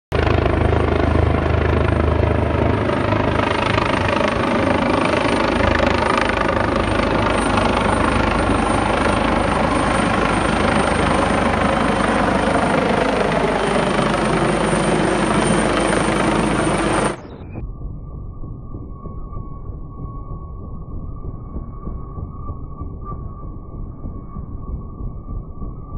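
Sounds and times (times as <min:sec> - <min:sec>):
helicopter rotor and engine: 0:00.1 - 0:17.6.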